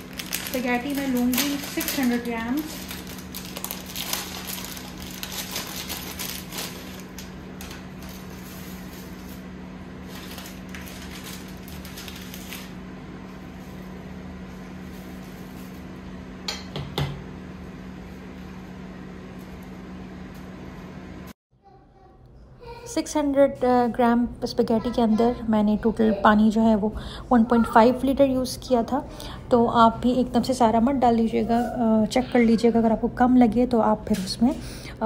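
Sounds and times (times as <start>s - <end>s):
dry spaghetti rattling: 0.0s - 8.3s.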